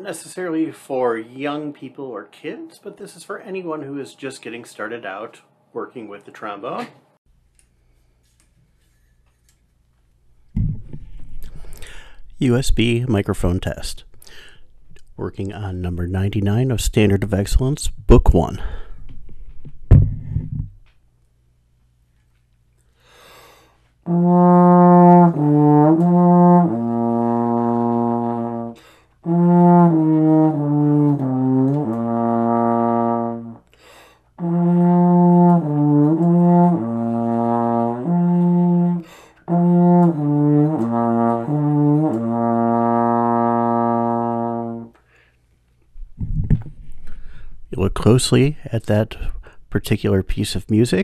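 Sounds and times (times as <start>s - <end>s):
quick breath: 11.4s - 12.3s, 14.2s - 14.7s, 22.9s - 23.8s, 33.7s - 34.3s, 45.0s - 45.4s, 46.9s - 47.6s
trombone playing: 24.0s - 33.7s, 34.4s - 45.0s.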